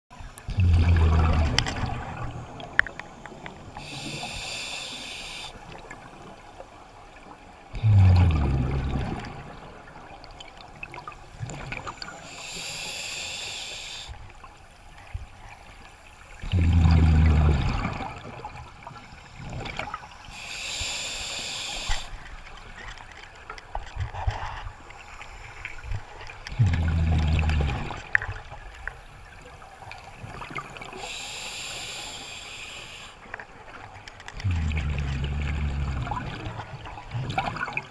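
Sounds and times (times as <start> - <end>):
breath through scuba regulator: 0.5 - 5.7, 7.7 - 9.1, 12.0 - 14.2, 20.3 - 22.2, 30.9 - 33.3, 34.4 - 36.6
bubbles hissing: 0.5 - 5.8, 7.7 - 9.8, 11.5 - 14.1, 16.4 - 18.6, 19.2 - 22.2, 26.4 - 28.4, 34.4 - 37.9.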